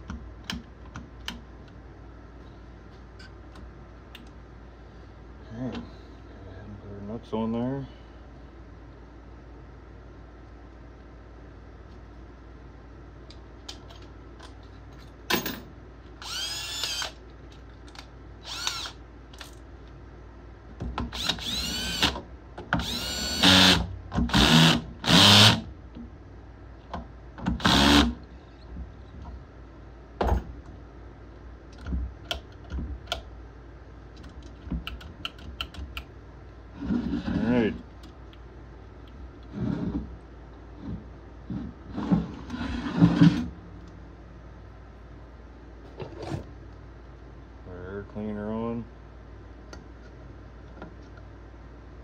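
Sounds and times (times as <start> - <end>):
power drill whining: 16.2 - 17.1, 18.4 - 19.0, 21.1 - 22.2, 22.8 - 25.6, 27.6 - 28.1
parts and tools clicking: 34.2 - 36.1.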